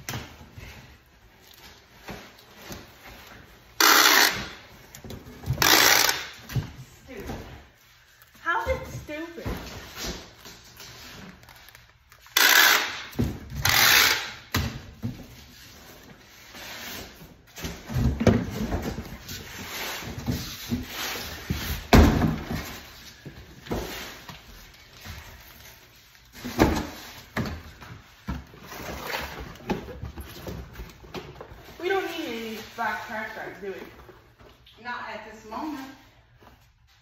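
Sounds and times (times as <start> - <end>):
packing tape ripping: 3.8 - 4.6, 5.5 - 6.4, 11.4 - 14.5.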